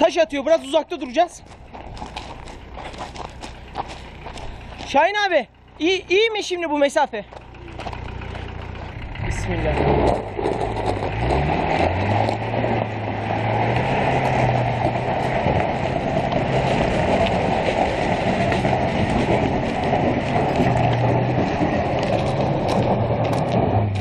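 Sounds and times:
tyres spinning on gravel: 0.0 - 24.0
stones clicking: 1.0 - 5.0, 7.3 - 9.0, 19.6 - 24.0
vehicle engine revving hard: 8.0 - 24.0.

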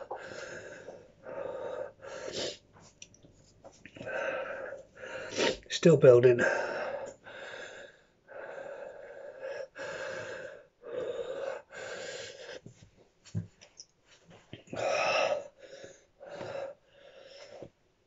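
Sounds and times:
man breathing hard: 0.0 - 2.6, 3.9 - 5.7, 6.4 - 12.6.

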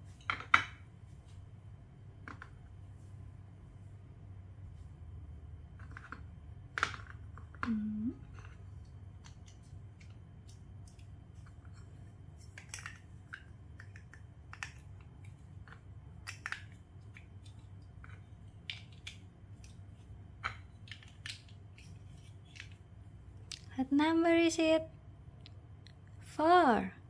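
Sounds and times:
plastic bricks clicking together: 12.5 - 19.8.

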